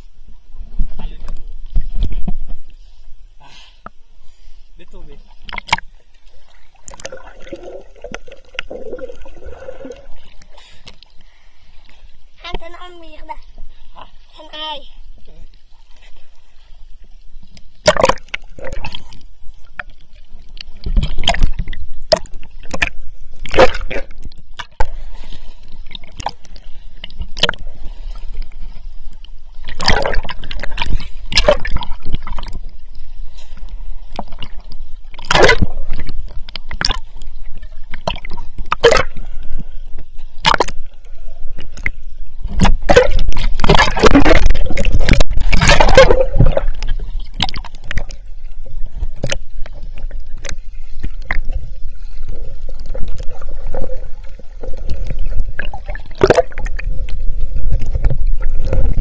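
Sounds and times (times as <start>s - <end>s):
muffled underwater gurgling: 4.8s - 10.5s, 29.4s - 32.8s, 33.4s - 59.0s
water splashing against camera: 4.8s - 59.0s.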